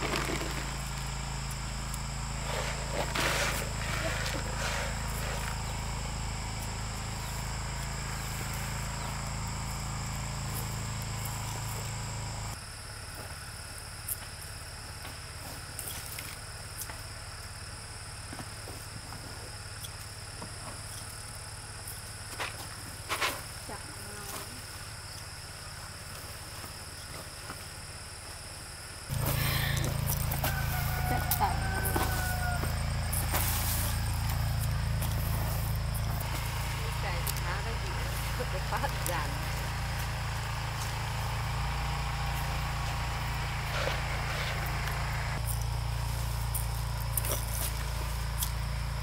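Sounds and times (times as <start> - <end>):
insects chorus: 0.0 - 49.0
low hum: 29.1 - 49.0.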